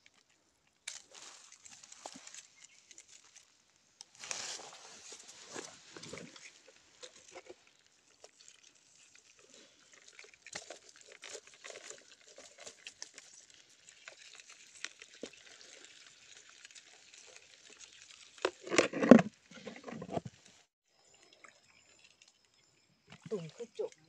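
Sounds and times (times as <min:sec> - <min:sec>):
wet patter and clicking: 0:05.5 - 0:20.3.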